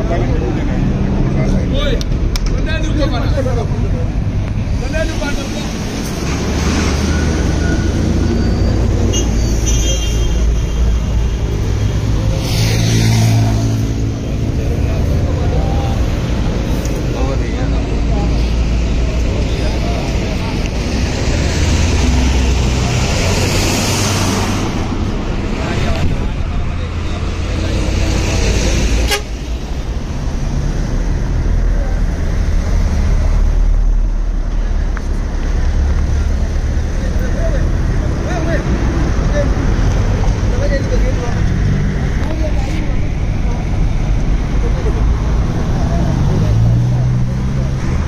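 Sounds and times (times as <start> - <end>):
road traffic rumble: 0.0 - 48.0
vehicle horn: 29.0 - 29.5.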